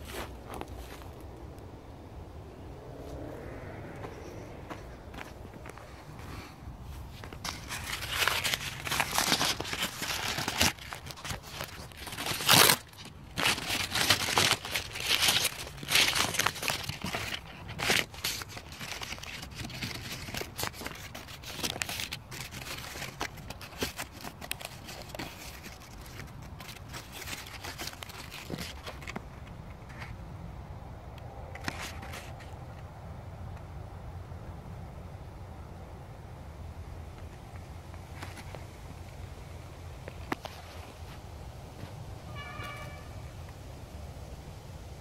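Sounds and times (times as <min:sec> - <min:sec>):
paper crinkling and rustling: 0:04.7 - 0:30.1, 0:31.5 - 0:32.6, 0:40.1 - 0:42.0.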